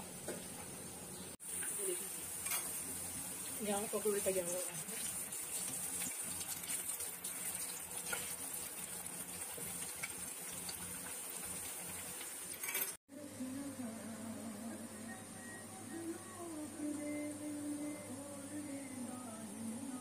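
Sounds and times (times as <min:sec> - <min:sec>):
food deep-frying in hot oil: 0:00.2 - 0:13.0.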